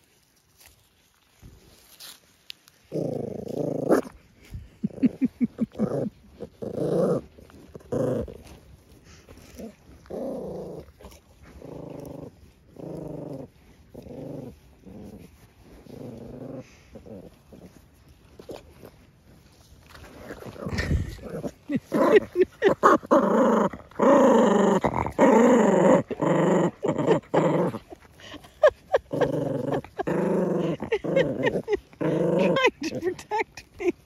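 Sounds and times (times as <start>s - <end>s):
dog growling: 2.9s - 4.2s, 4.8s - 8.6s, 9.4s - 17.8s, 20.0s - 33.4s.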